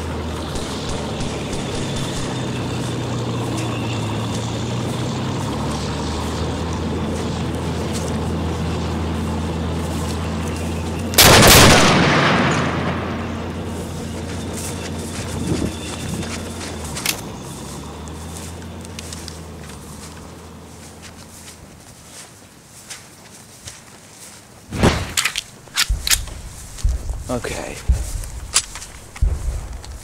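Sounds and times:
gunfire or explosion blast: 11.2s - 13.5s, 29.2s - 29.8s
steady low drone: 25.6s - 30.0s.

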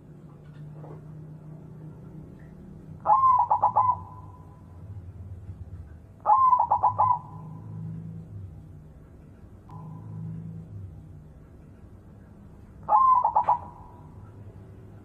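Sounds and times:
dove cooing: 3.0s - 4.5s, 6.2s - 8.2s, 12.8s - 14.2s.

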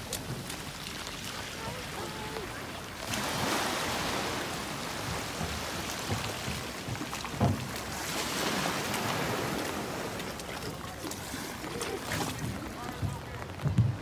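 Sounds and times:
water lapping against concrete: 0.0s - 14.0s.

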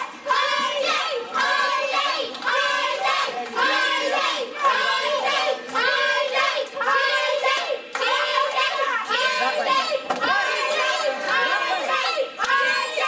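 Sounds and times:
children chanting: 0.0s - 13.0s
hand-clapping: 0.3s - 8.8s, 11.1s - 12.8s.

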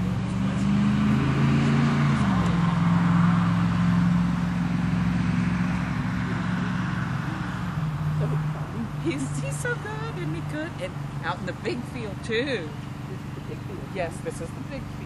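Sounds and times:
road noise: 0.0s - 15.0s
vehicle engine running: 0.0s - 15.0s.

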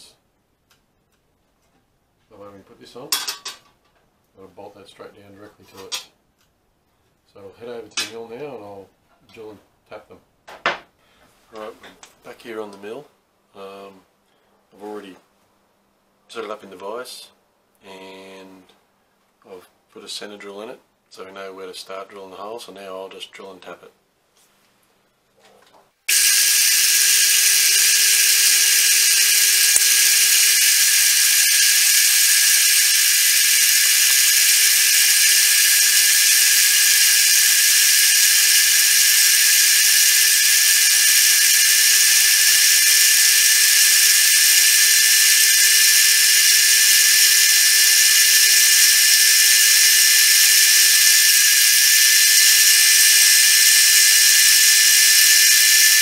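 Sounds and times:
drill boring metal: 26.1s - 56.0s
milling machine spindle whine: 26.1s - 56.0s.

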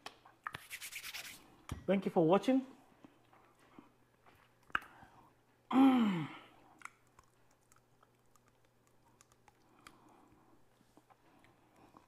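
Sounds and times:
man sighing: 5.7s - 6.5s
faint chewing: 6.6s - 12.0s.

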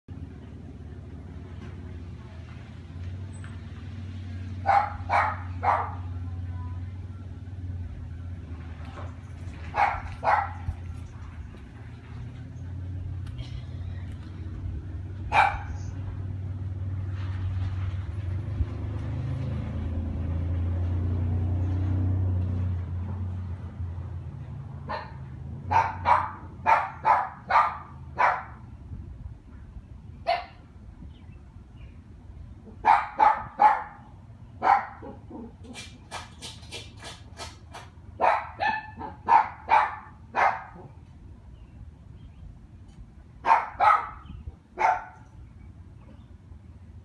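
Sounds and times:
dog barking: 4.6s - 6.1s, 9.7s - 10.6s, 15.3s - 15.8s, 24.9s - 28.6s, 30.3s - 30.6s, 32.8s - 35.5s, 38.2s - 40.9s, 43.4s - 44.2s, 44.8s - 45.2s.

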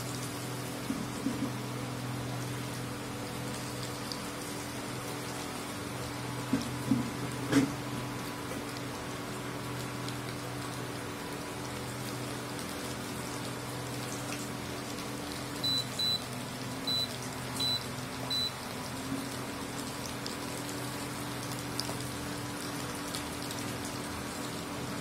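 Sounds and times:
food deep-frying in hot oil: 0.0s - 25.0s
induction cooktop hum: 0.0s - 25.0s
short high beeps: 15.6s - 16.2s, 16.9s - 18.5s.

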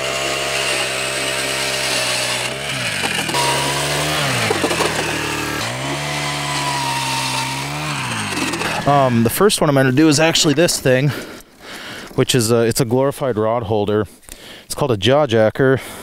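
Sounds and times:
ice auger engine boring ice: 0.0s - 10.5s.

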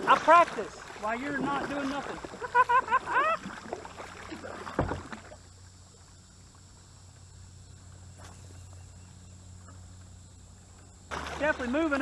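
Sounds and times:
paddle splash: 0.0s - 7.2s, 10.6s - 12.0s
low steady hum: 0.0s - 12.0s
high-pitched insect drone: 5.2s - 12.0s.

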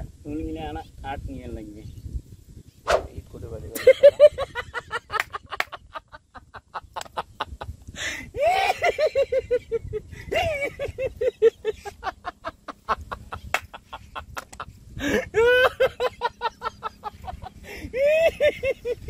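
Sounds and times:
man laughing hard: 3.8s - 19.0s.

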